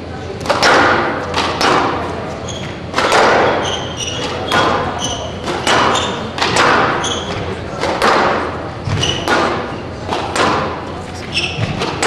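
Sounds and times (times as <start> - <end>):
squash ball cracking off racquets: 0.4 - 12.0
shoes squeaking on court floor: 2.2 - 8.0, 8.7 - 12.0.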